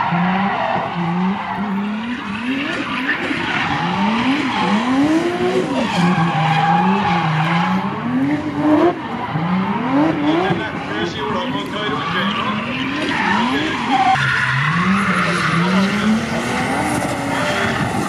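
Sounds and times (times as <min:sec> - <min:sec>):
car engine revving: 0:00.0 - 0:18.0
tyres skidding and squealing: 0:00.0 - 0:18.0.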